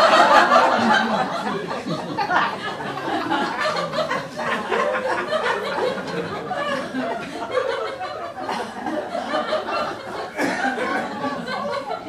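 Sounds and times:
audience laughing: 0.0 - 12.0.

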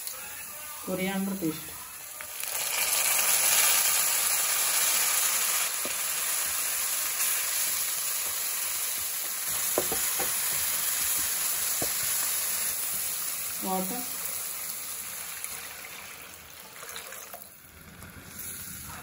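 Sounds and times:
paste sizzling in hot oil: 0.0 - 19.0
light stirring knocks: 9.5 - 12.0.

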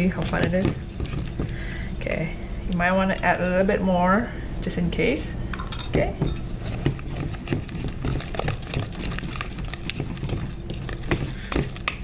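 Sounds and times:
slime being stirred: 0.0 - 1.8, 5.8 - 12.0
low steady hum: 0.0 - 12.0.

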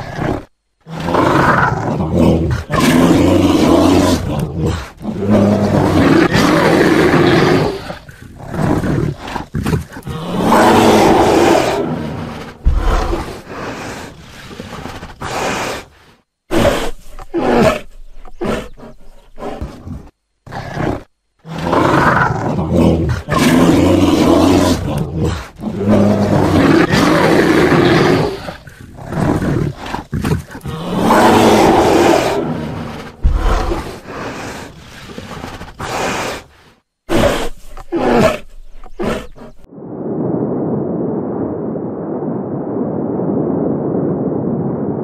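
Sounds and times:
bear roaring and growling: 0.0 - 39.7.

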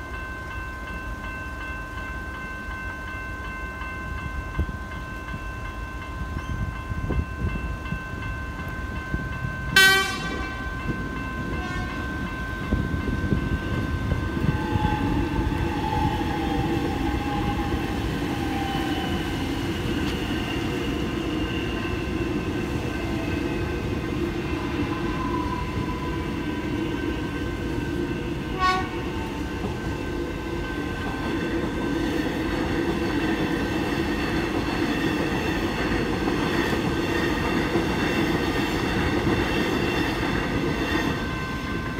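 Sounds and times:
crossing bells ringing: 0.0 - 41.9
electric train rumbling: 0.0 - 41.9
train horn blast: 9.7 - 10.6, 11.5 - 12.1, 28.5 - 29.3.

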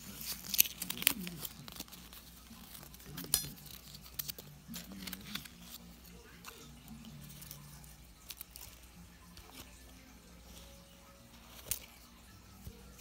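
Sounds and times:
plastic packaging crinkling: 0.0 - 9.9.

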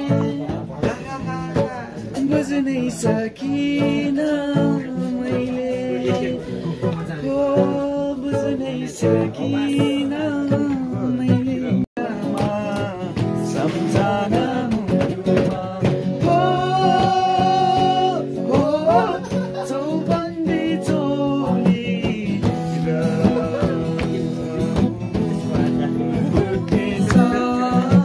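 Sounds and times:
plucked guitar: 0.0 - 28.0.

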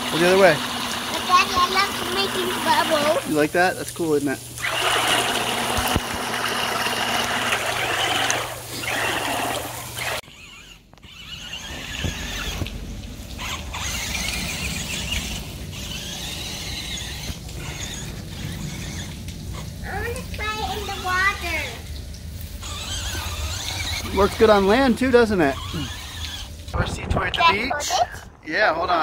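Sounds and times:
toy electric motor whining: 0.0 - 3.6, 4.6 - 21.8, 22.6 - 26.7
water splashing: 11.2 - 29.0.

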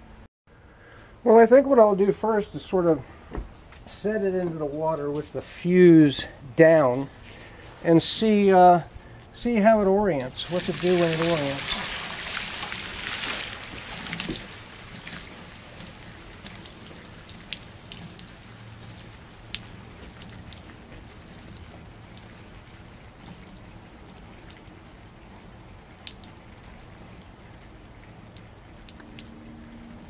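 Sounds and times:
water drips and small splashes: 10.2 - 30.0
water sloshing in a can: 10.2 - 30.0.

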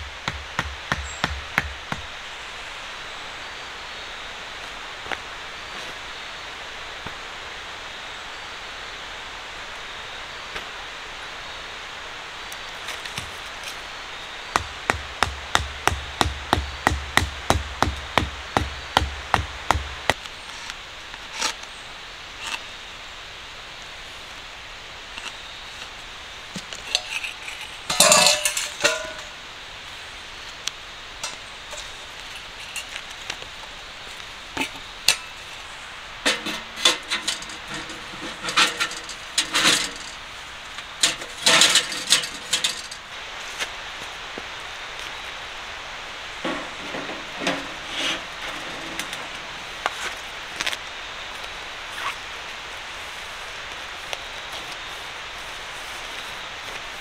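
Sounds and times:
metal pipe clinking and clattering: 26.6 - 29.4, 31.2 - 33.0, 36.2 - 40.2, 41.0 - 43.1.

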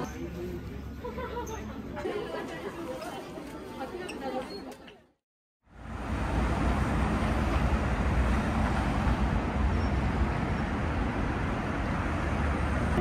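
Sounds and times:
city street traffic rumble: 5.7 - 13.0.

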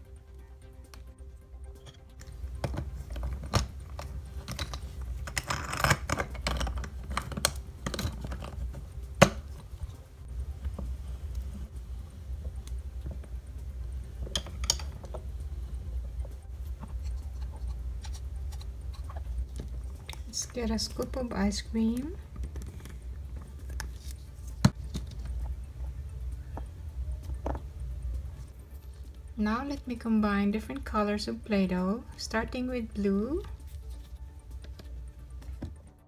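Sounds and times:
low steady hum: 0.0 - 36.0
plastic pieces clicking and rattling: 2.6 - 8.8.

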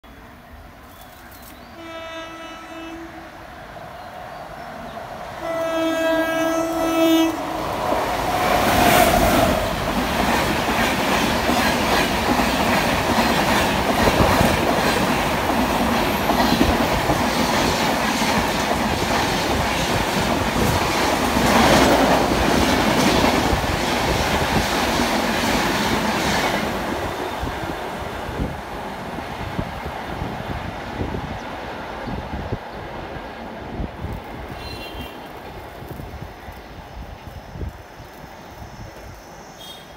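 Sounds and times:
train passing with wheel clatter: 0.1 - 39.9
train horn: 1.8 - 3.4, 5.4 - 7.6, 34.6 - 35.3, 39.6 - 39.9.

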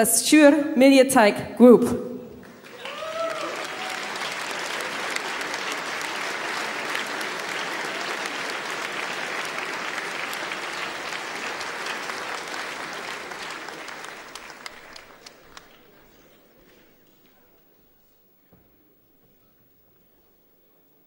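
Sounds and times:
audience applauding: 2.4 - 17.5.

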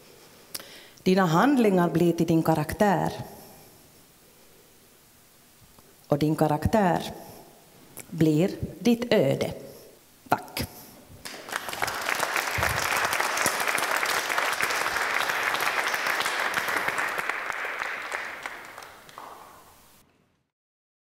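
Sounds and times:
audience applauding: 11.2 - 20.0.

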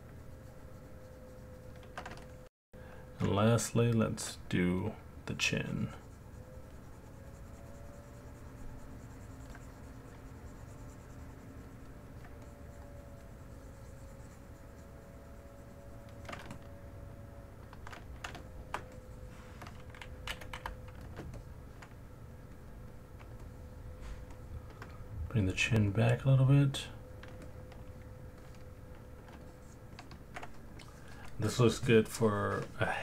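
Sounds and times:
faint steady hum: 0.0 - 33.0
keyboard and mouse clicks: 19.6 - 23.6, 27.2 - 31.4.

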